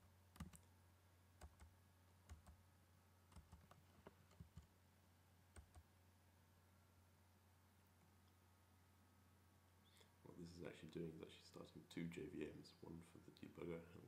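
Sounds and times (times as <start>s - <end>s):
low steady hum: 0.0s - 14.0s
computer keyboard typing: 0.4s - 0.7s, 1.4s - 1.7s, 2.3s - 2.6s, 3.3s - 4.7s, 5.6s - 5.9s.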